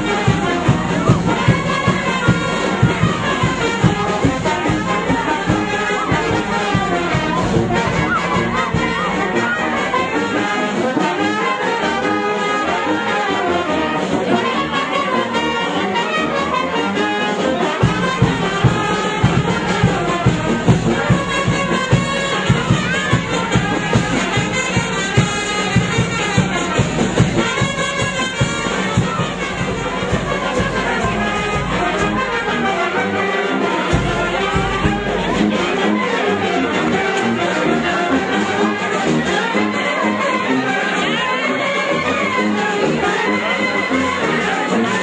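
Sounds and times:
drum beat: 0:00.0 - 0:10.3, 0:17.8 - 0:36.0
brass band playing dance music: 0:00.0 - 0:45.0.

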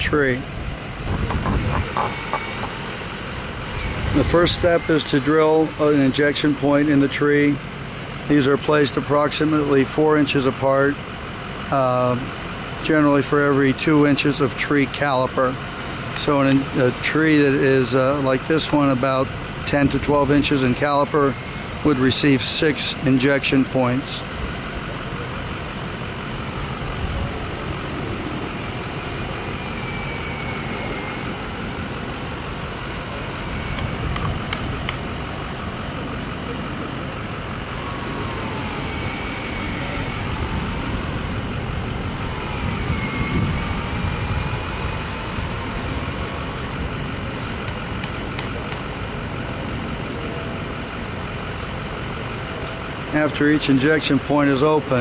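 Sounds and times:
vehicle engine rumble: 0:00.0 - 0:55.0
cordless drill whine: 0:01.0 - 0:07.1, 0:19.9 - 0:23.7, 0:27.3 - 0:36.0, 0:37.6 - 0:47.5.

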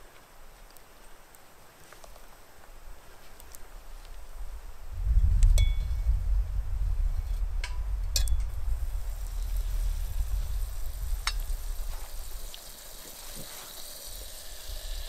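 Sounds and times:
sizzle and crackle of fire: 0:00.0 - 0:15.0
low rumble: 0:04.2 - 0:12.8.

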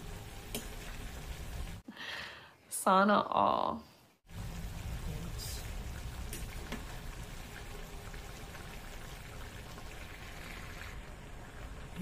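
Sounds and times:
food sizzling in a wok: 0:00.0 - 0:01.8, 0:04.3 - 0:12.0.

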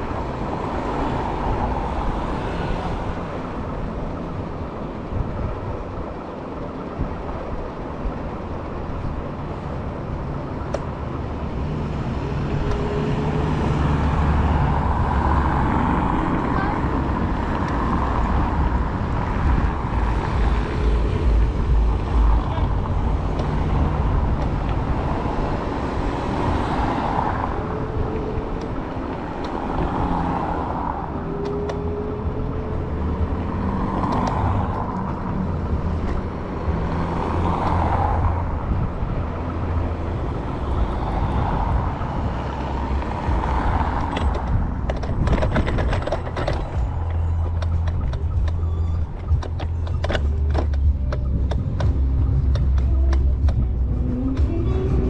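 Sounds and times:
low road rumble: 0:00.0 - 0:55.0
street traffic: 0:00.0 - 0:55.0
sharp clicks and rattles: 0:43.9 - 0:53.7.

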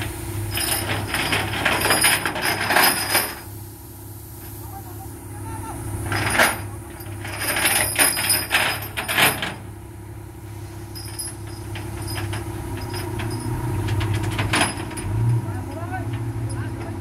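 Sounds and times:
engine idling: 0:00.0 - 0:17.0
metal clanks and rattles: 0:00.5 - 0:03.5, 0:06.0 - 0:09.7, 0:10.9 - 0:17.0.

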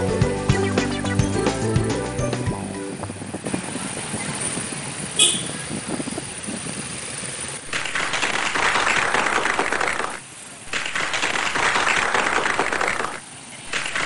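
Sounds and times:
hands clapping: 0:07.7 - 0:14.0.

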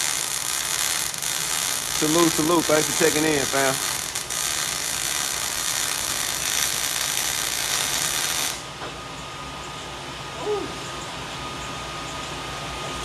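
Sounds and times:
welding arc hissing and crackling: 0:00.0 - 0:08.8.

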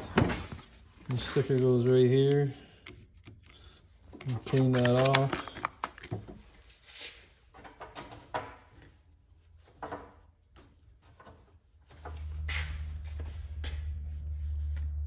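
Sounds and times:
low steady hum: 0:11.9 - 0:15.0.

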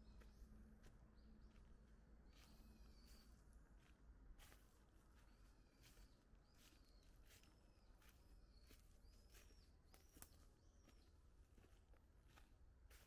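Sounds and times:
bird chirps: 0:05.7 - 0:11.2.

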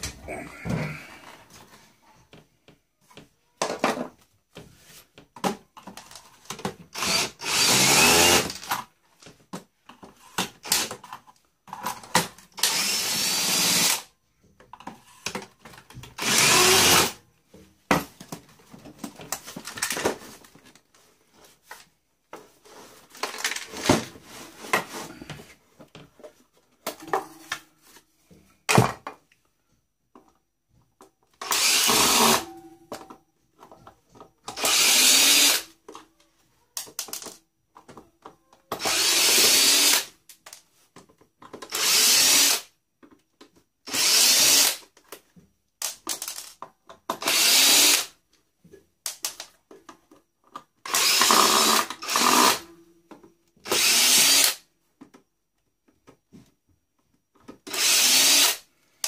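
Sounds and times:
handheld power tool running: 0:06.9 - 0:08.7, 0:12.6 - 0:14.0, 0:16.2 - 0:17.2, 0:31.4 - 0:32.5, 0:34.5 - 0:35.7, 0:38.8 - 0:40.1, 0:47.2 - 0:48.1, 0:50.9 - 0:52.6, 0:53.7 - 0:54.6, 0:57.7 - 0:58.6
clicks and knocks of parts: 0:36.8 - 0:38.9, 0:44.9 - 0:47.3, 0:48.7 - 0:50.9.

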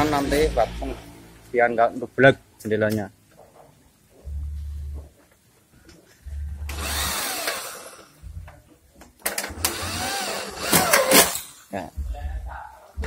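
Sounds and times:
electric drill boring into metal: 0:06.7 - 0:08.2, 0:09.4 - 0:11.6.

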